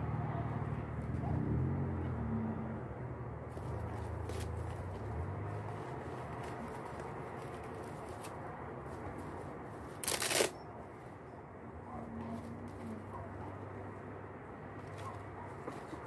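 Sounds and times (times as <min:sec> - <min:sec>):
dry leaf strips rustling and crackling: 0:03.5 - 0:10.5.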